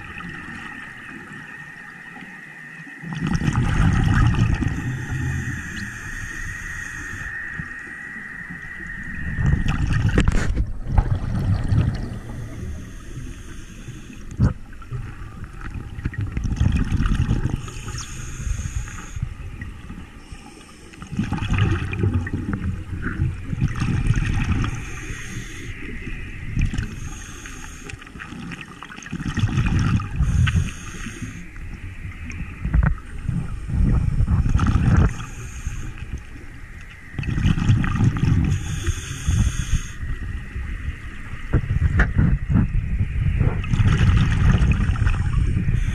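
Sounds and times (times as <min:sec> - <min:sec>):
exhaled bubbles gurgling: 0:00.0 - 0:45.9
hissing inhales through regulator: 0:04.6 - 0:07.6, 0:12.1 - 0:14.4, 0:17.5 - 0:19.4, 0:20.2 - 0:21.1, 0:24.7 - 0:26.0, 0:26.8 - 0:28.2, 0:30.1 - 0:31.7, 0:34.9 - 0:36.3, 0:38.3 - 0:40.2, 0:45.2 - 0:45.9.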